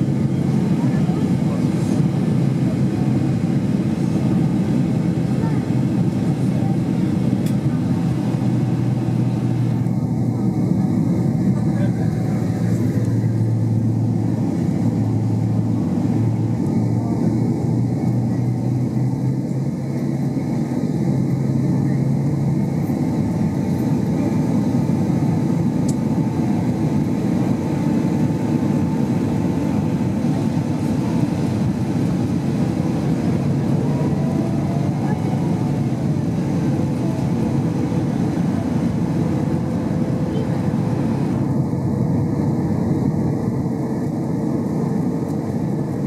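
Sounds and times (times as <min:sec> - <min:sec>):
jet engine roar in cabin: 0:00.0 - 0:46.0.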